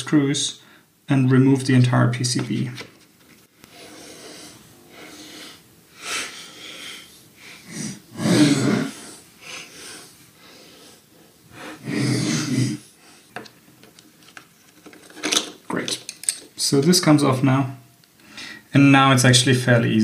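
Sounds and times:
person breathing out: 0:03.7 - 0:13.3.

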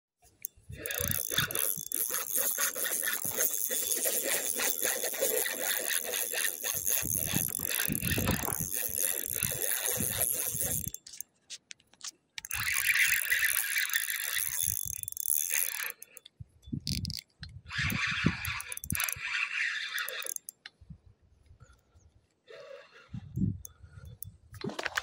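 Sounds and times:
fishing reel clicking rattle: 0:00.4 - 0:11.3, 0:12.4 - 0:20.6.

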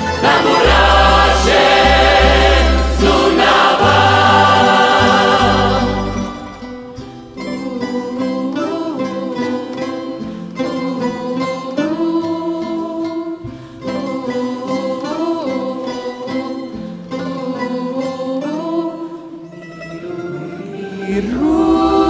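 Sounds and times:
double bass: 0:00.0 - 0:09.1, 0:21.2 - 0:22.0
plucked folk string ensemble: 0:00.0 - 0:22.0.

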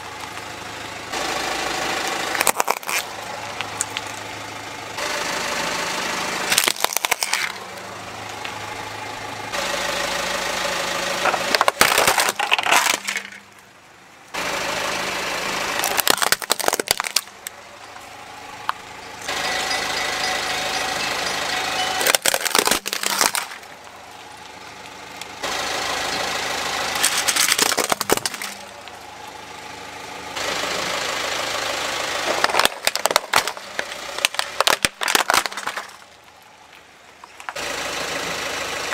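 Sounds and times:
car engine idling: 0:00.0 - 0:38.9
plastic toys cracking and crunching: 0:02.3 - 0:04.1, 0:06.5 - 0:07.6, 0:11.2 - 0:13.6, 0:15.8 - 0:17.6, 0:22.0 - 0:25.3, 0:27.0 - 0:29.0, 0:32.2 - 0:37.6.

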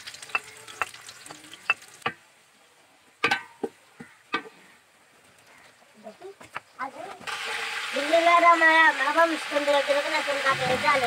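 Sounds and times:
onions sizzling in a pot: 0:00.0 - 0:02.3, 0:06.8 - 0:11.0.

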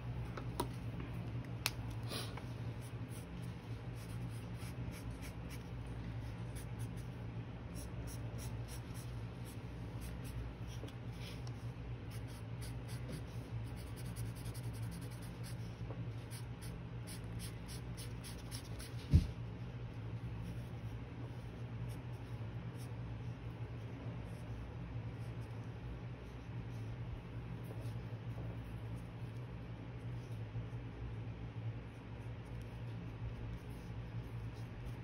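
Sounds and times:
steady low hum: 0:00.0 - 0:35.0
pencil scratching on paper: 0:02.8 - 0:19.0.

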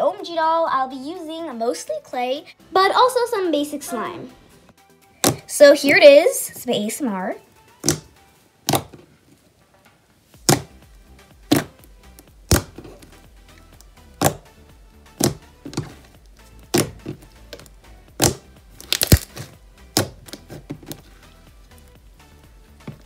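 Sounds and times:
slime squishing with pops: 0:05.2 - 0:05.5, 0:07.7 - 0:09.1, 0:10.4 - 0:22.0.

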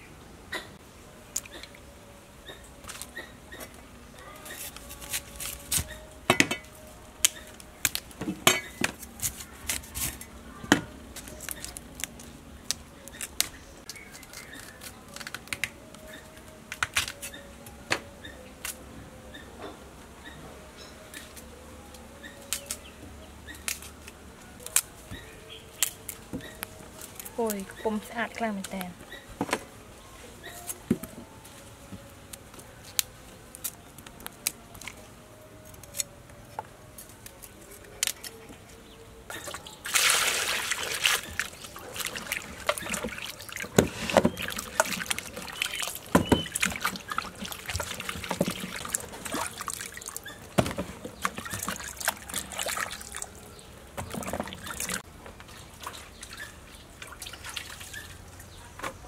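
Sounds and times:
water splashing in steel basin: 0:39.4 - 0:50.3, 0:51.2 - 0:53.3
water drips: 0:39.4 - 0:50.4, 0:51.2 - 0:53.4
rush of water: 0:39.8 - 0:43.7.

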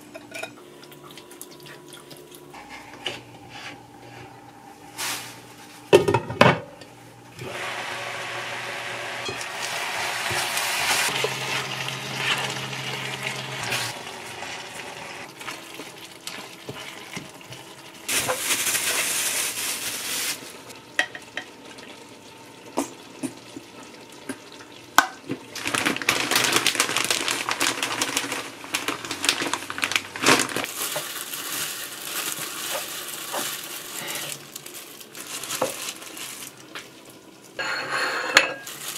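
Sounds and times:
plastic rustling and crinkling: 0:04.9 - 0:06.0, 0:09.5 - 0:12.7, 0:15.3 - 0:20.7, 0:25.5 - 0:37.0, 0:38.6 - 0:38.9
food sizzling in pan: 0:07.5 - 0:17.4.

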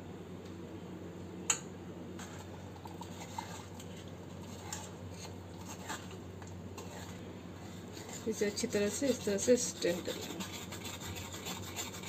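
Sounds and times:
spoon scraping metal strainer: 0:06.8 - 0:12.0.

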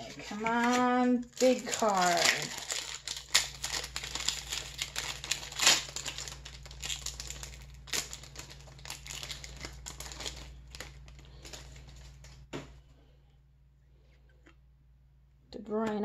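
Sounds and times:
foil wrapper crinkling and tearing: 0:00.0 - 0:12.5
faint low hum: 0:00.0 - 0:16.0.

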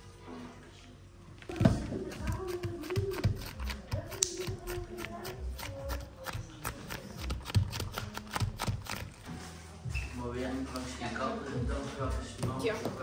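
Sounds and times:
hands slapping soft candy: 0:02.4 - 0:09.2.

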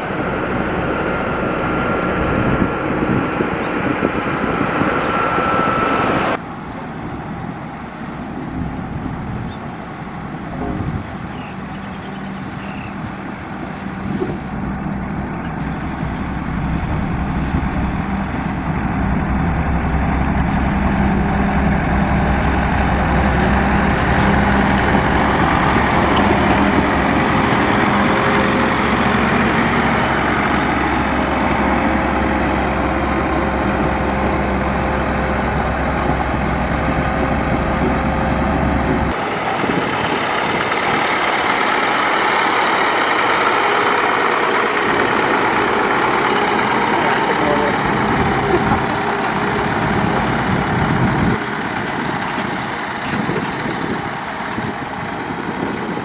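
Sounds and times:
diesel engine droning: 0:00.0 - 0:56.0
deep low rumble: 0:14.0 - 0:42.1.

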